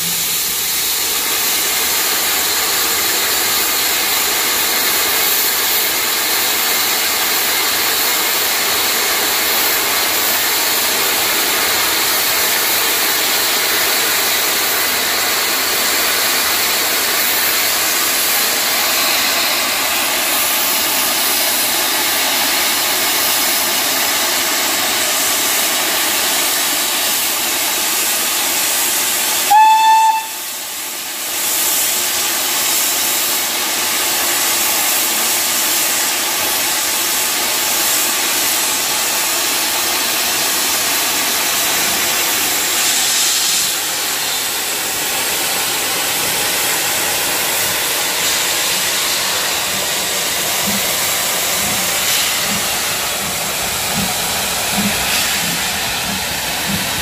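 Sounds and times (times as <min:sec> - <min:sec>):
steam locomotive hissing: 0:00.0 - 0:57.0
steam whistle blast: 0:29.4 - 0:30.8.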